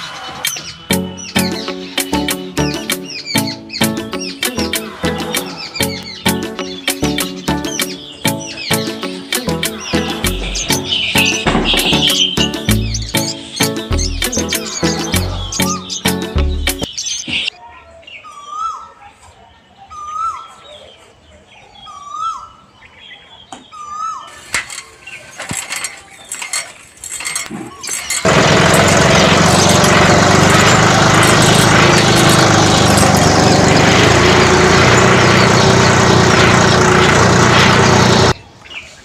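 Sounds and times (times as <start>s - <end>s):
bird chirps: 0.0s - 17.5s
loud steady engine: 9.5s - 16.8s, 28.2s - 38.4s.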